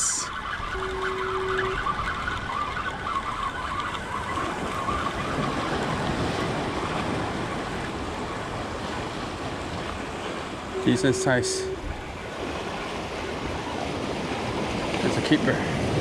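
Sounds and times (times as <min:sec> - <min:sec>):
steady tone: 0:00.0 - 0:02.0, 0:10.4 - 0:12.3
ocean surf: 0:00.0 - 0:16.0
wind on microphone: 0:00.0 - 0:16.0.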